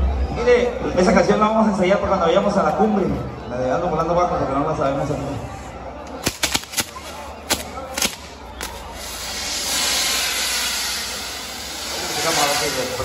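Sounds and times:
firework pops and cracks: 6.2s - 10.9s
fireworks hissing rush: 6.2s - 13.0s.

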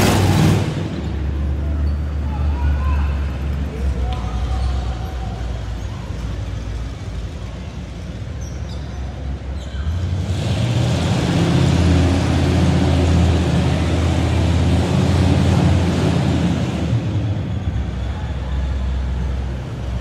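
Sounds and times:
truck engine droning: 0.0s - 8.4s, 9.4s - 20.0s.

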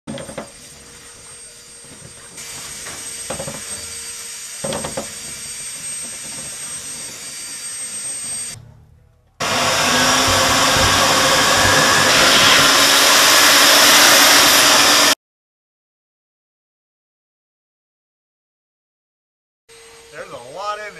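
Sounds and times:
vacuum running: 0.1s - 8.6s, 9.4s - 15.2s, 19.7s - 20.9s.

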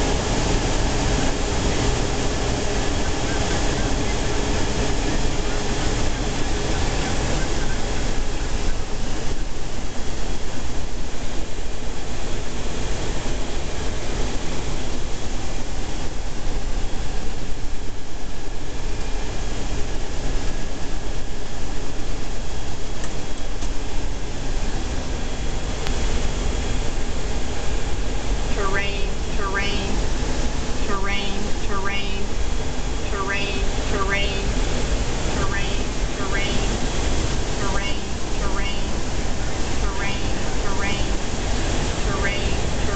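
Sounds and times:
aircraft engine and airflow noise: 0.0s - 42.9s
faint steady tones: 26.7s - 42.9s.

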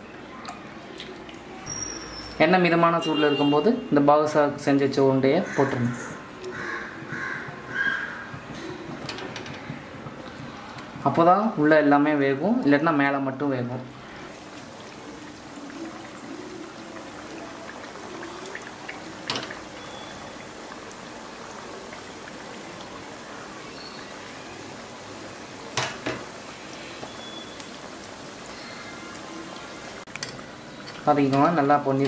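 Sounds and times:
dough deep-frying sizzle: 14.0s - 32.0s.

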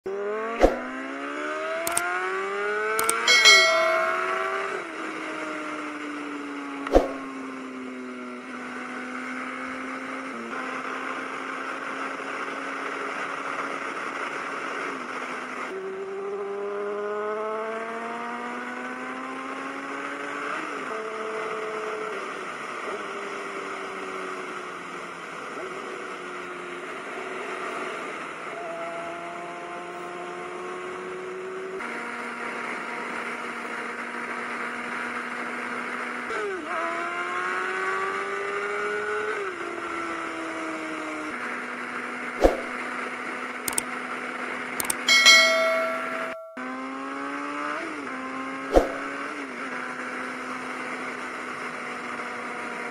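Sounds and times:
motorcycle engine revving: 0.1s - 52.9s
sharp knock: 48.7s - 49.1s.

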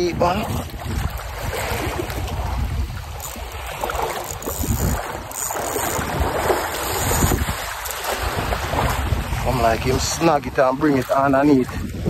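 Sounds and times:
small waves lapping: 0.0s - 12.0s
wind buffeting microphone: 0.0s - 12.0s.

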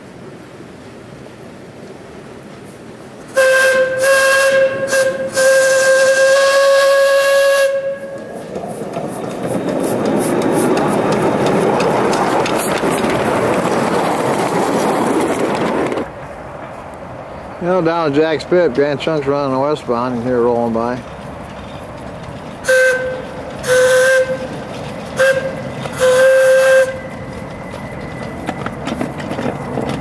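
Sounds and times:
steam locomotive hissing past: 0.0s - 30.0s
steam locomotive whistle: 3.3s - 8.3s, 22.6s - 24.6s, 25.2s - 27.3s.

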